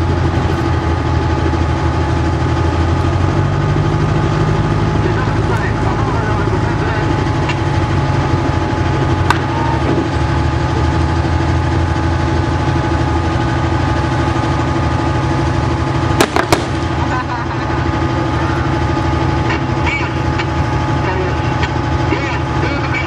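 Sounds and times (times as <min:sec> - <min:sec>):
vehicle engine idling: 0:00.0 - 0:23.0
gunshots cracking: 0:16.2 - 0:17.0.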